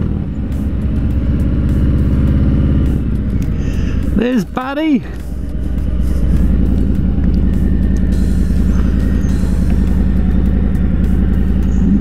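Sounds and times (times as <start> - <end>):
motorcycle engine running at low revs: 0.0 - 12.0.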